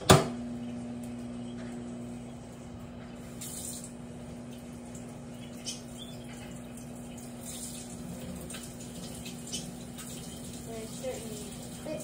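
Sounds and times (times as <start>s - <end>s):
low electrical hum: 0.0s - 12.0s
tap water running and splashing: 3.1s - 12.0s.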